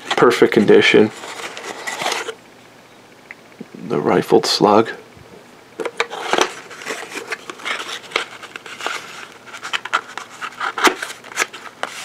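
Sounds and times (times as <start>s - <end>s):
cardboard rustling and scraping: 0.0s - 2.4s, 5.8s - 12.0s.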